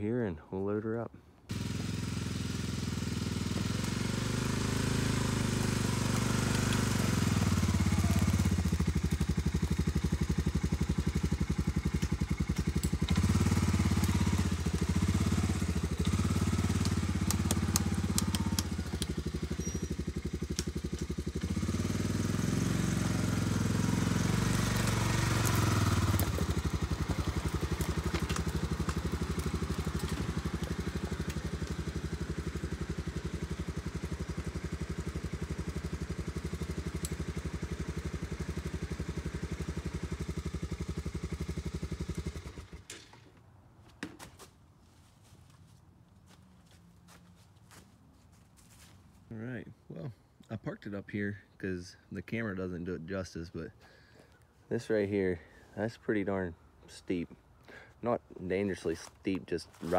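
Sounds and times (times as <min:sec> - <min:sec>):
atv engine running: 0:01.5 - 0:43.2, 0:57.7 - 0:59.9
sharp clicks: 0:16.0 - 0:19.2.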